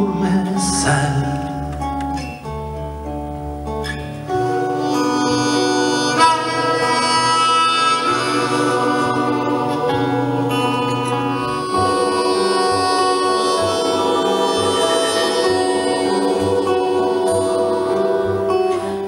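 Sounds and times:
acoustic guitar: 0.0s - 19.0s
choir singing wordless chords: 4.3s - 19.0s.

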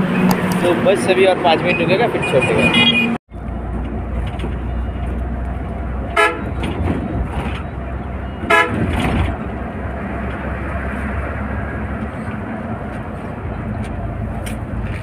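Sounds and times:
coach engine and road drone: 0.0s - 15.0s
horn toots: 6.1s - 6.6s, 8.4s - 9.0s.

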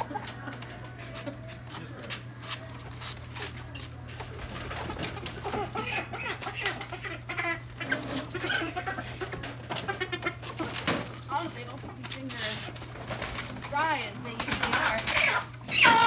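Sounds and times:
steady low hum: 0.0s - 15.9s
chickens clucking: 3.2s - 16.0s
plastic crates clattering: 3.6s - 6.7s, 7.3s - 16.0s.

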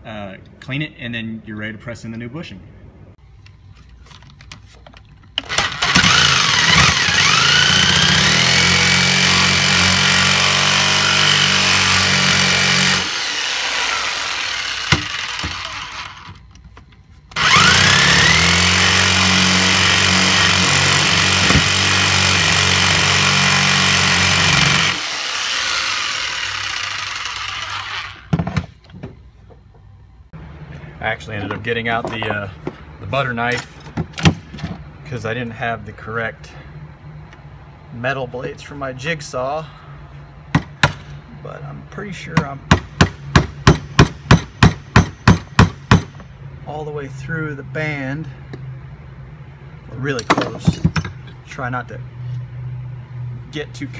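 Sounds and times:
jigsaw cutting metal: 5.4s - 16.3s, 17.4s - 28.3s.

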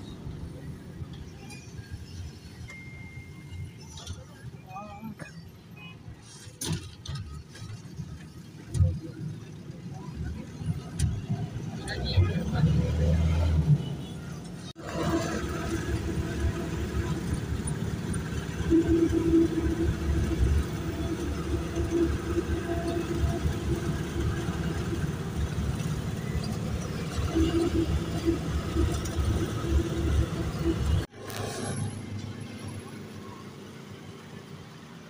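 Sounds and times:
vehicle engine running: 14.8s - 33.8s.

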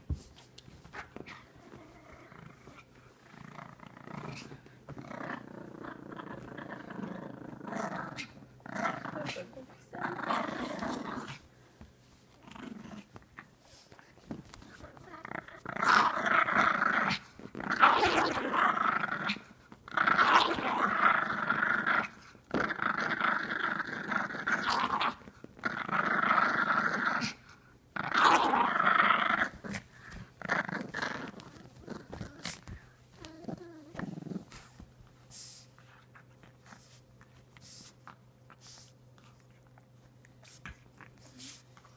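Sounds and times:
dog growling in play: 0.9s - 11.6s, 12.3s - 34.8s.

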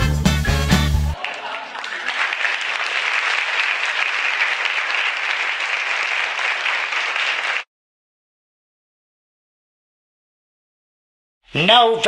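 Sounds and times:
audience applause: 1.2s - 7.7s.

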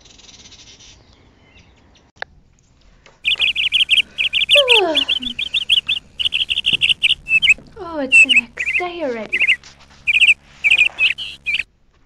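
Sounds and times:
bird call sliding down: 3.2s - 11.6s
songbirds chirping: 3.2s - 11.6s.

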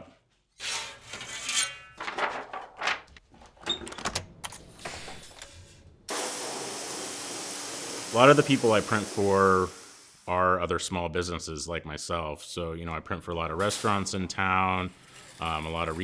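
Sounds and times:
pressure washer spraying water: 6.1s - 10.3s, 13.6s - 14.3s.

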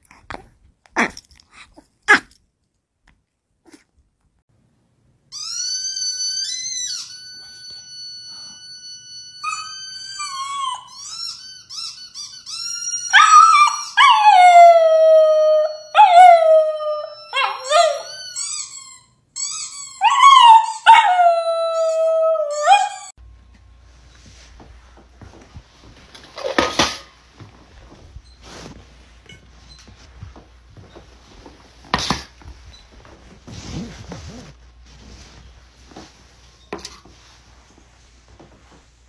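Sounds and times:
dog whining: 5.4s - 23.1s
dog yipping: 9.4s - 14.6s, 17.0s - 23.1s.

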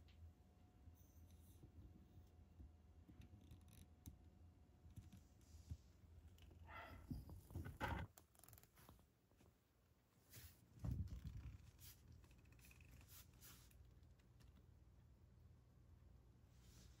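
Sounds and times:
cat fur rubbing against microphone: 10.3s - 13.9s.

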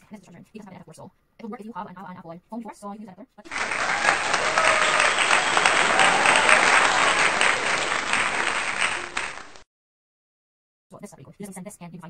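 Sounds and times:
crowd applauding: 3.5s - 9.6s.

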